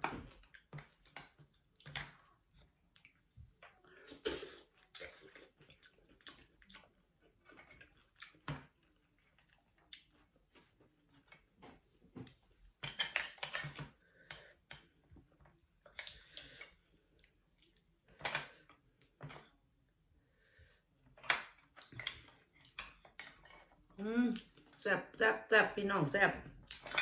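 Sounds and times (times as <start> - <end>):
wet slurping and chewing: 0.4 - 10.4.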